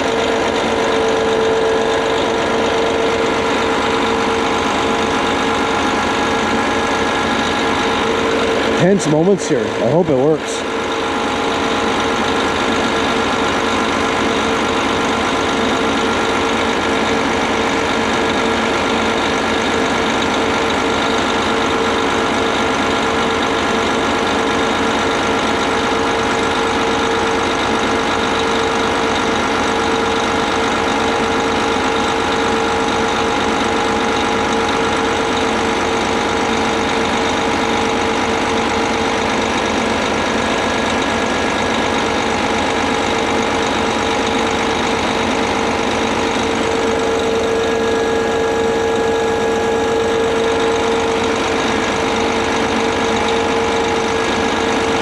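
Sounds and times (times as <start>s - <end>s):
constant hum: 0.0s - 17.2s
truck diesel engine running: 0.0s - 55.0s.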